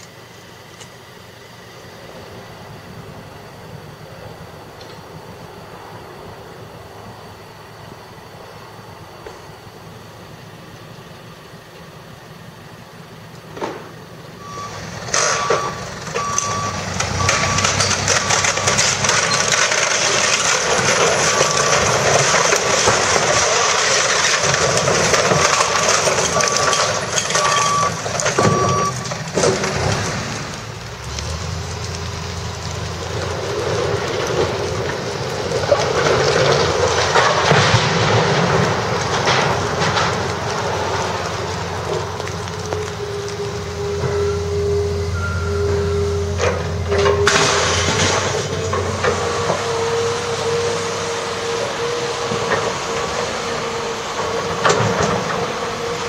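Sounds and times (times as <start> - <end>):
heavy machine engine droning: 0.0 - 56.0
debris crashing and crackling: 13.2 - 56.0
backup alarm beeping: 14.4 - 18.9, 25.4 - 29.1, 43.0 - 46.4
clatter: 15.0 - 43.0, 46.3 - 49.6.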